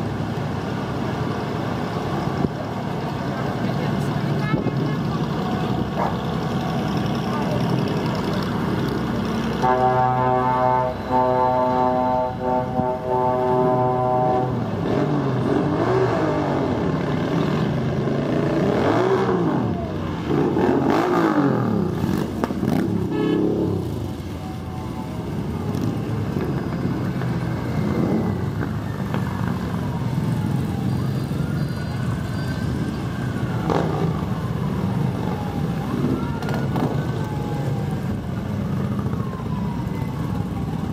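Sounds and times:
steady horn: 9.6s - 14.7s, 23.1s - 23.6s
motorcycles revving past: 14.4s - 24.2s, 33.4s - 34.5s.

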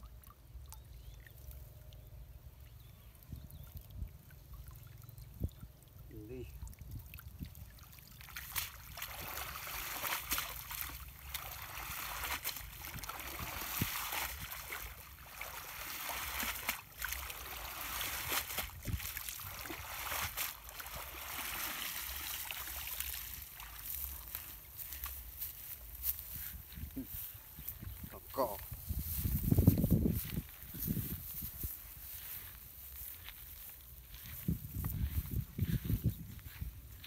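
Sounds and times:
water splashing off a net: 6.8s - 24.4s.

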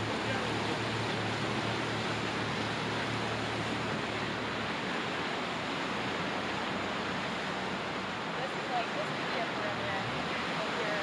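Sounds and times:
whitewater rushing and churning: 0.0s - 11.0s.

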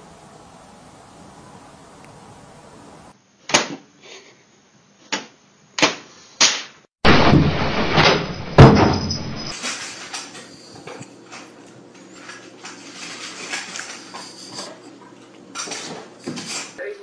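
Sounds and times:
loud bang: 7.0s - 9.6s.

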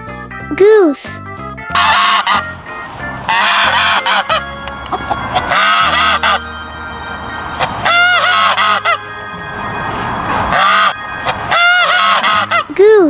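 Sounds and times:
geese honking: 1.7s - 12.9s.

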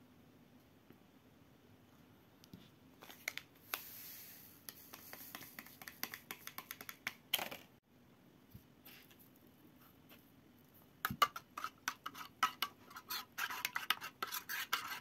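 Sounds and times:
yeast pouring hiss: 3.6s - 4.6s.

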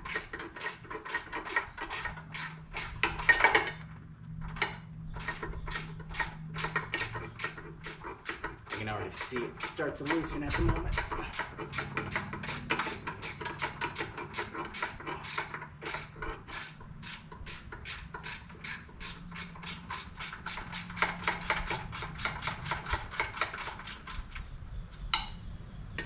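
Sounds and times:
ratchet wrench clicking: 5.2s - 24.4s.

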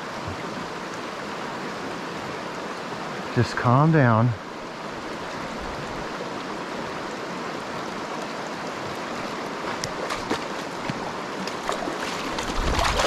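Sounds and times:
river water running over stones: 0.0s - 13.0s
water splashes: 0.0s - 13.0s.

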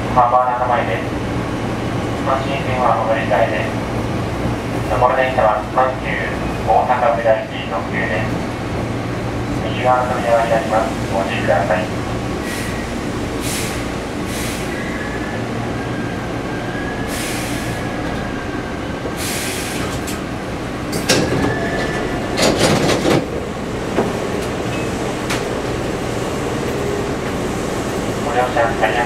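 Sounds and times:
train wheels and motors rumbling: 0.0s - 29.0s
faint wheel squeal: 14.5s - 18.5s, 21.4s - 22.2s
rail clatter: 19.0s - 29.0s.

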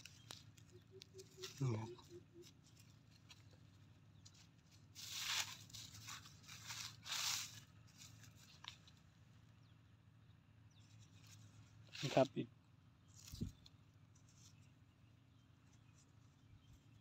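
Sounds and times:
hand scraping through dry grass: 4.7s - 8.7s.

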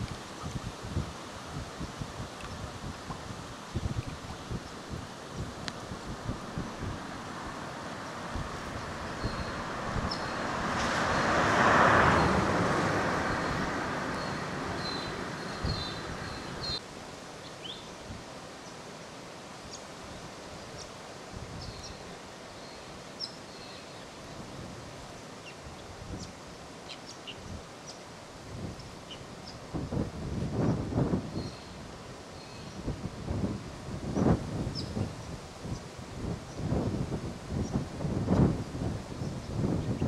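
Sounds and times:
wind rushing: 0.0s - 16.8s, 29.7s - 31.5s, 32.8s - 40.0s.

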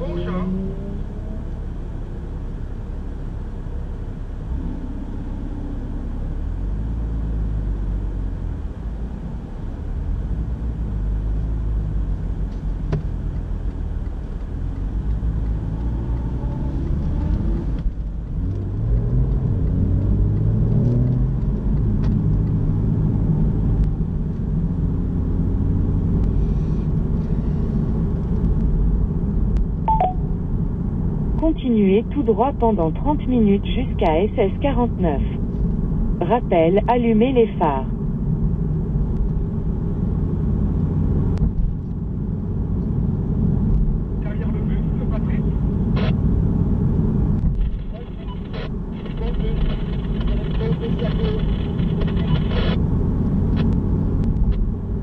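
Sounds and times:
car engine accelerating: 0.0s - 29.8s
low road rumble: 0.0s - 55.0s.

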